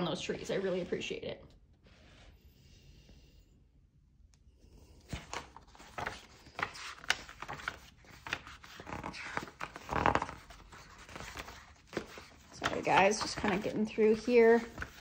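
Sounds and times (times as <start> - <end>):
paper pages flipping: 5.0 - 15.0.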